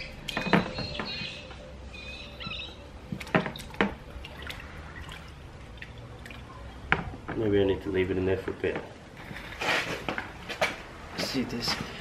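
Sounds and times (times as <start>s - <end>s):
water sloshing in a bucket: 3.0s - 7.6s.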